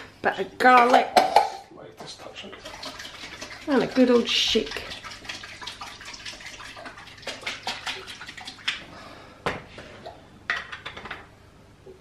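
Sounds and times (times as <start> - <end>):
water splashing in sink: 2.0 - 8.9.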